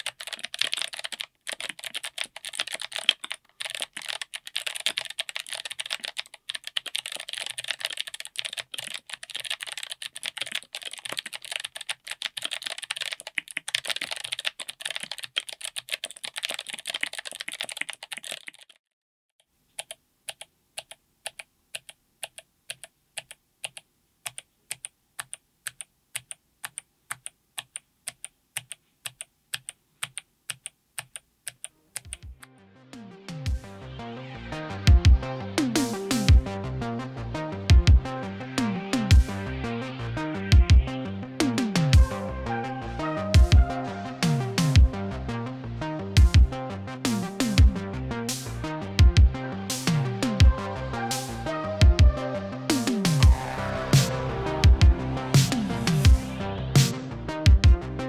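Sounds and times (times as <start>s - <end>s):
mechanical keyboard typing clicks: 0.0s - 18.8s.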